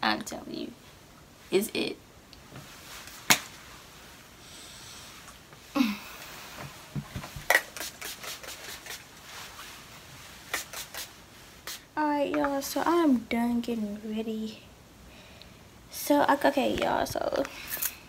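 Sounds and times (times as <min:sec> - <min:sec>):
spray bottle hissing: 0:07.5 - 0:09.0, 0:10.5 - 0:11.9.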